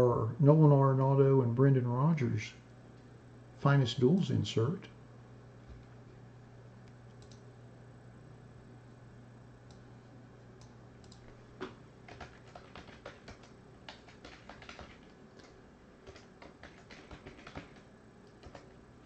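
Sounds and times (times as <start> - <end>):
typing on computer keyboard: 11.0 - 18.8.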